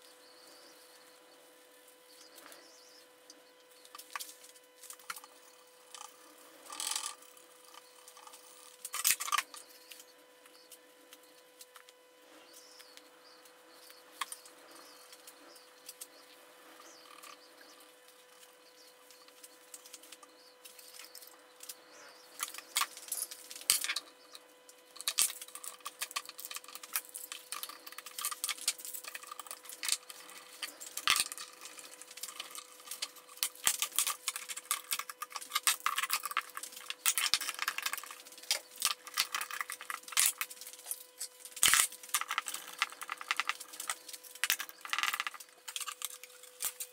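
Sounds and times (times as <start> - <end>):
rustling of wood and plastic wrap: 25.0 - 46.9.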